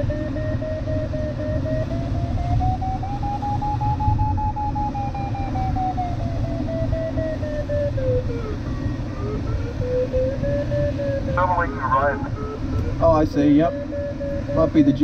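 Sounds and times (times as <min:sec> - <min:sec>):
variometer beeping: 0:00.0 - 0:15.0.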